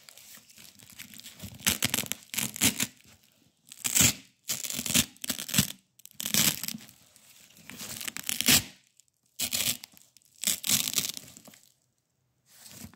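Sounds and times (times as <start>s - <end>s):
velcro tape ripping: 1.6s - 3.0s, 3.7s - 6.8s, 8.0s - 11.3s.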